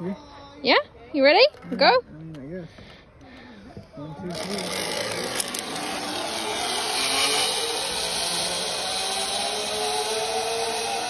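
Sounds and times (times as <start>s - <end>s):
zip-line pulley whirring on cable: 4.3s - 11.0s.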